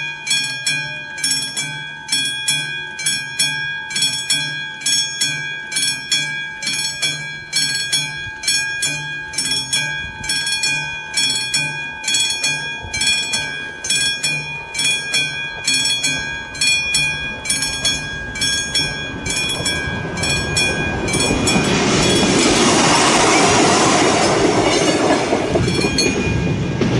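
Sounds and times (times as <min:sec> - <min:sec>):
level-crossing warning bell: 0:00.0 - 0:26.9
diesel railcar passing: 0:05.6 - 0:26.9.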